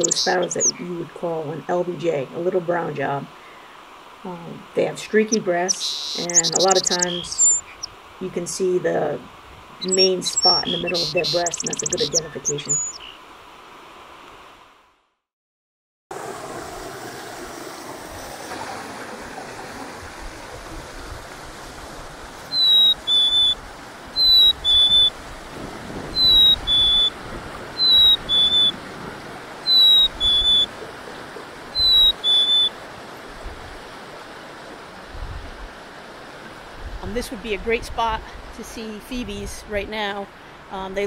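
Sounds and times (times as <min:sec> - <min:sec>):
river water rushing: 0:03.2 - 0:14.8, 0:16.1 - 0:37.4
chickadee two-note whistle: 0:24.3 - 0:25.1, 0:29.7 - 0:30.7, 0:31.8 - 0:32.7.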